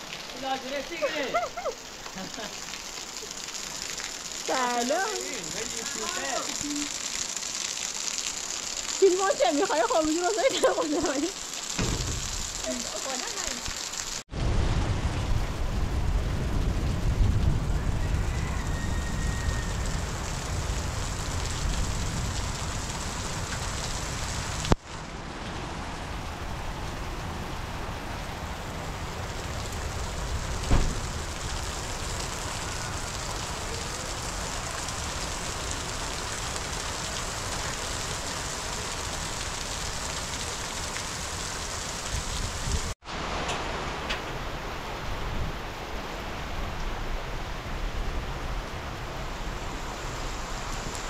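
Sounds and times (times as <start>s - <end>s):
heavy rain pouring: 0.0s - 51.0s
sharp knock: 11.8s - 12.3s.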